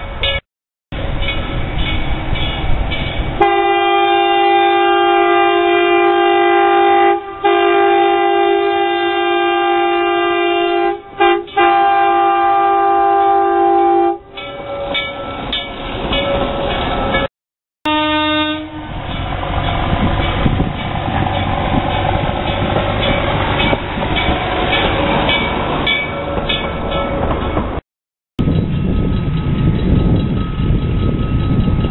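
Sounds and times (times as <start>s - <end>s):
rail car rumbling: 0.0s - 17.3s, 17.9s - 27.8s, 28.4s - 31.9s
train chime horn blasts: 3.4s - 15.4s, 17.9s - 19.2s
wheels clicking over rail joints: 18.9s - 27.8s.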